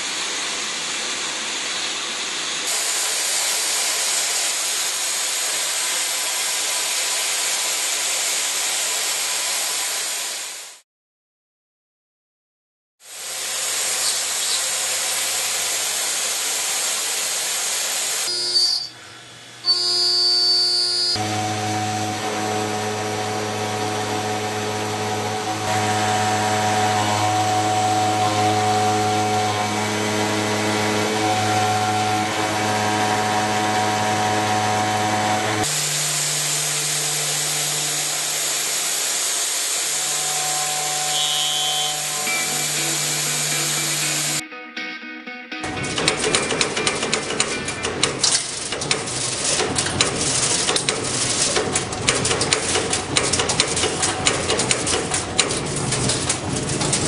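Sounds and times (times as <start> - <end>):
milling cutter whining: 18.3 - 44.4, 45.7 - 57.0.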